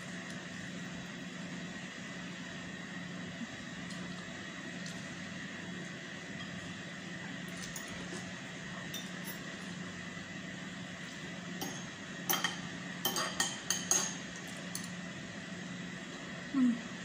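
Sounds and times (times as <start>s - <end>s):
faint hum: 0.0s - 17.0s
cutlery clinking on ceramic dishes: 11.6s - 14.2s.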